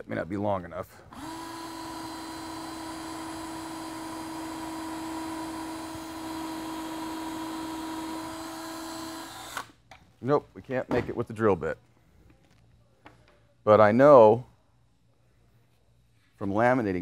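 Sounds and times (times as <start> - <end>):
cordless drill whine: 1.1 - 9.7.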